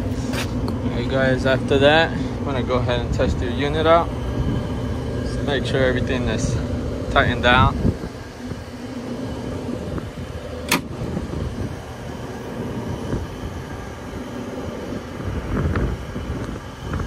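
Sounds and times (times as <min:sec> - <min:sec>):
rooftop unit low rumble: 0:00.0 - 0:17.0
sharp click: 0:10.7 - 0:10.9.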